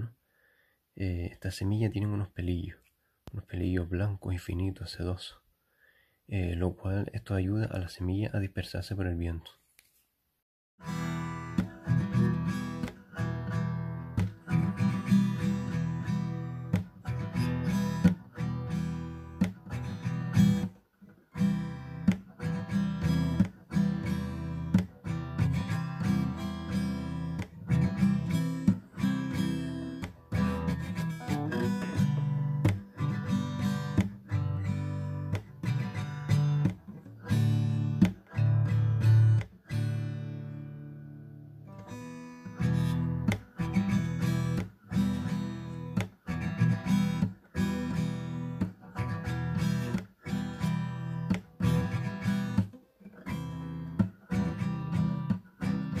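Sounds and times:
acoustic guitar strumming chords: 10.8 - 56.0.

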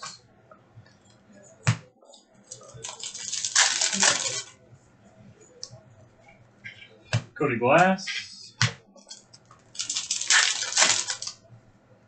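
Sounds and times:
foil wrapper crinkling: 2.5 - 4.5, 9.1 - 11.4.

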